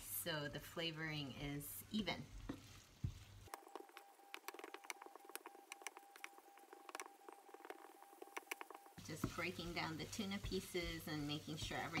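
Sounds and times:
light sizzling: 0.0s - 12.0s
spatula stirring in frying pan: 1.8s - 12.0s.

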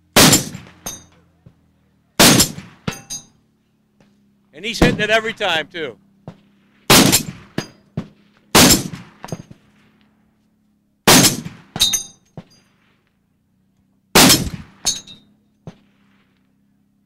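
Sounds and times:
rifle shots echoing: 0.0s - 1.1s, 2.2s - 3.2s, 4.6s - 9.8s, 11.0s - 13.0s, 14.1s - 15.1s
metallic pings: 11.8s - 12.7s, 14.8s - 15.4s.

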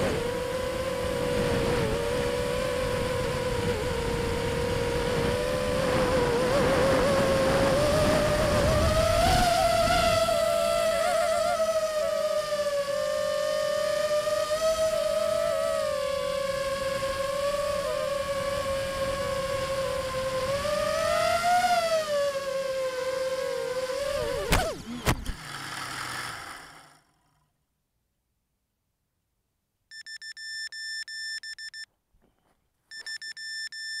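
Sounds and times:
drone motors whining: 0.0s - 27.1s.

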